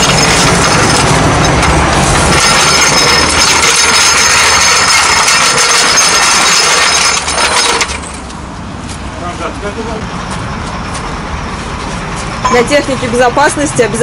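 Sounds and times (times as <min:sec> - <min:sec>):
jack wheels rattling on asphalt: 0:00.0 - 0:08.5.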